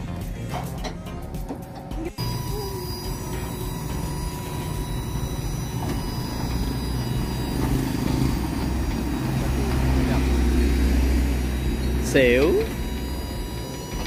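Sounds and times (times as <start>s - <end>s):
mechanical motor hum: 0.0s - 14.0s.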